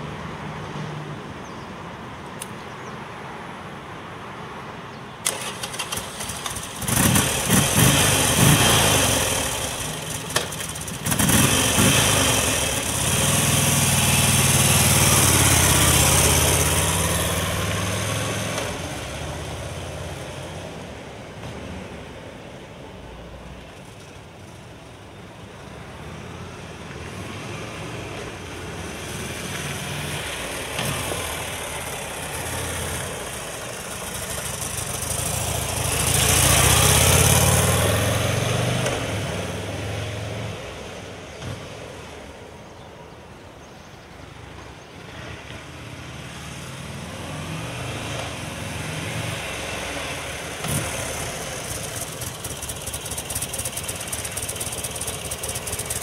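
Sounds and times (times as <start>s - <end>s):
motorcycle engine passing by: 5.3s - 20.6s, 27.0s - 41.1s, 45.9s - 56.0s.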